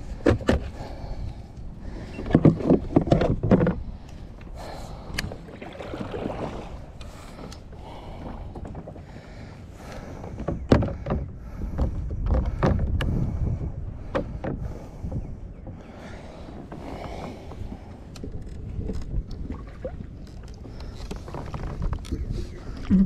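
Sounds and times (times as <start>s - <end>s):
water lapping at hull: 0.0s - 23.0s
wind: 0.0s - 23.0s
gear knocking on plastic kayak: 10.1s - 13.4s.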